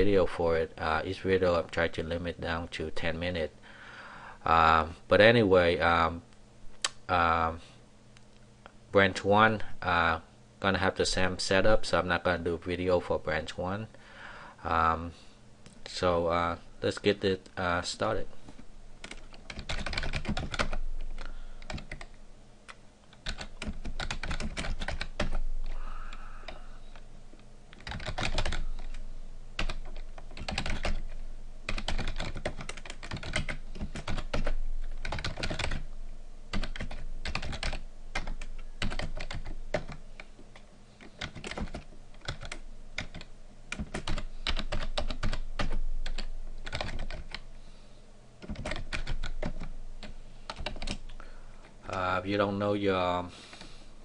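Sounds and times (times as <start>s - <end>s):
computer keyboard typing: 19.0s - 20.8s, 21.6s - 22.1s, 23.1s - 25.4s, 27.7s - 29.0s, 29.6s - 35.9s, 36.5s - 47.4s, 48.4s - 51.1s.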